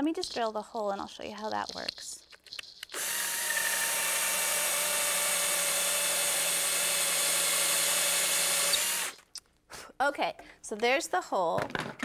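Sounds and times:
cordless drill boring into wood: 2.9 - 9.2.

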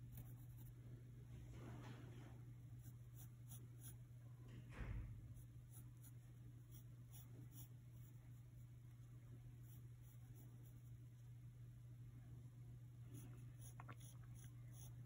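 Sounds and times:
pencil scratching on paper: 0.0 - 0.8, 5.4 - 8.4, 13.2 - 15.0
steady low hum: 0.0 - 15.0
soft thump: 4.7 - 5.2.

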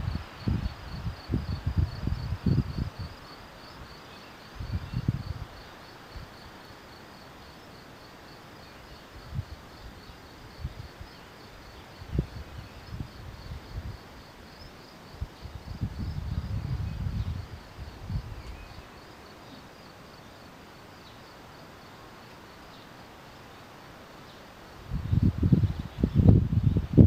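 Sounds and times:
cricket chirping: 0.0 - 27.0.

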